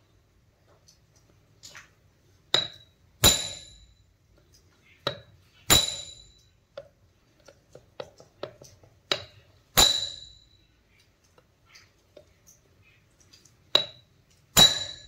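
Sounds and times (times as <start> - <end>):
hammer striking metal: 2.6 - 4.0, 5.1 - 6.5, 9.1 - 10.6, 14.6 - 15.0
light metal taps: 4.4 - 10.2.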